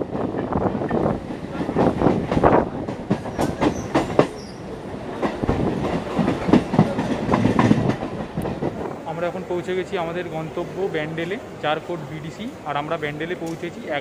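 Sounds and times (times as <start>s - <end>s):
train running rumble: 0.0s - 9.7s
train wheels clanking: 1.5s - 8.9s.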